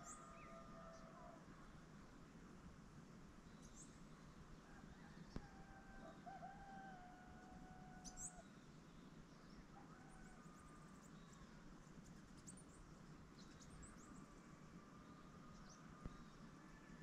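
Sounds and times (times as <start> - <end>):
distant roosters crowing: 0.0 - 1.7, 4.6 - 8.4, 9.7 - 11.1, 13.9 - 17.0.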